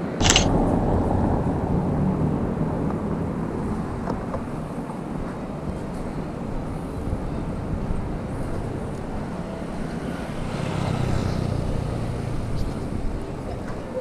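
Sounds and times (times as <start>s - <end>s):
low rumble of traffic: 0.0s - 14.0s.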